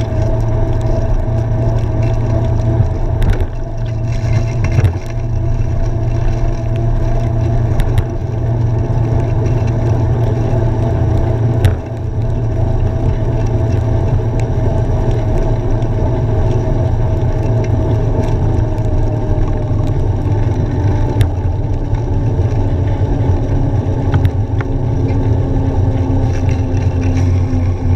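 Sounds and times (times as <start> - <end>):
road rumble: 0.0 - 27.9
wind on microphone: 0.0 - 27.9.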